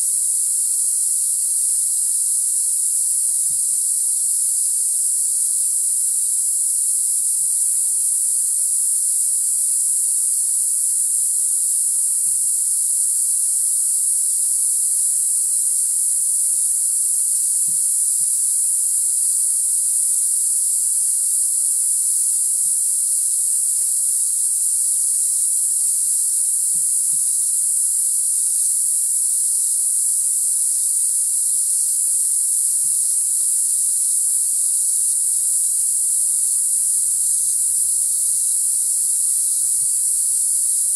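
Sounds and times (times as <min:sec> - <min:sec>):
insect chorus: 0:00.0 - 0:40.9.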